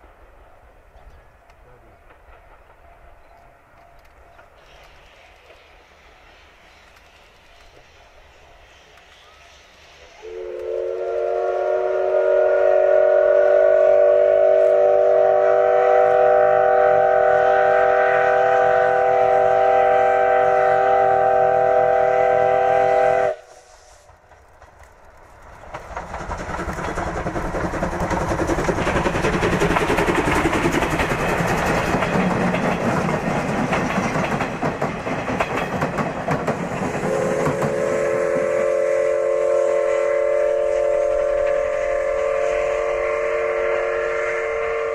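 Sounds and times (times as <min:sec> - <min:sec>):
steam train running: 0:00.0 - 0:44.9
steam locomotive whistle: 0:08.4 - 0:24.1, 0:36.8 - 0:44.9.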